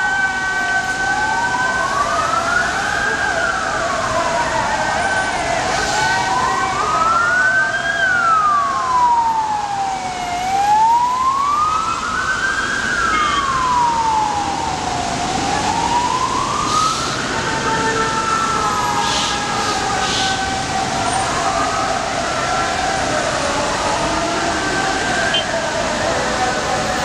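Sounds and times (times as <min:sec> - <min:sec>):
city traffic: 0:00.0 - 0:27.0
emergency vehicle siren wailing: 0:00.0 - 0:27.0.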